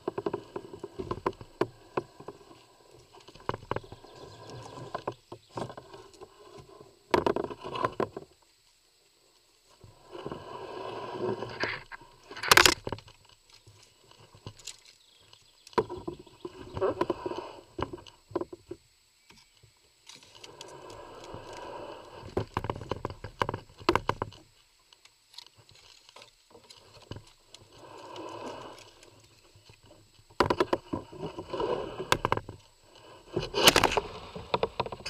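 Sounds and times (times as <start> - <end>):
kayak knocking against wood: 30.4 - 32.5.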